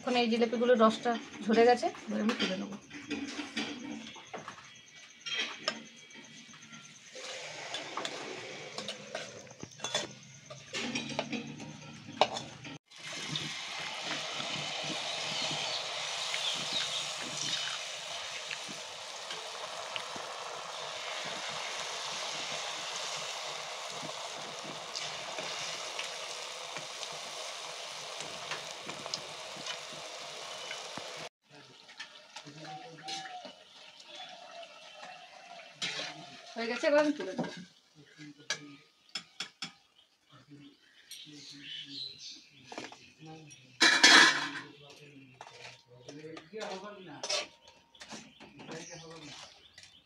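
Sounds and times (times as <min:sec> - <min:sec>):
metal spatula scraping steel bowl: 0:05.3 - 0:26.4, 0:35.8 - 0:37.6, 0:45.3 - 0:49.8
batter sizzling in hot oil: 0:06.3 - 0:11.2, 0:12.2 - 0:39.4.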